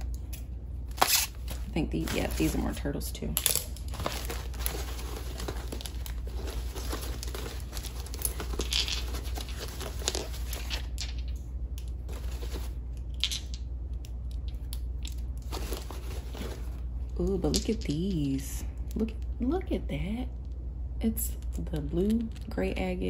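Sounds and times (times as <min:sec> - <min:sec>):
steady low hum: 0:00.0 - 0:23.0
packing wrap crinkling and tearing: 0:00.9 - 0:02.5, 0:03.4 - 0:10.9.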